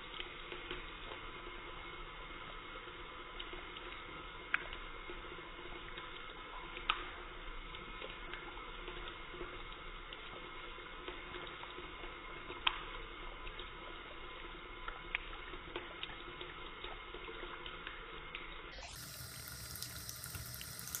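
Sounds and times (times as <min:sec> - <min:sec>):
tap water splashing: 0:04.5 - 0:04.8, 0:14.8 - 0:21.0.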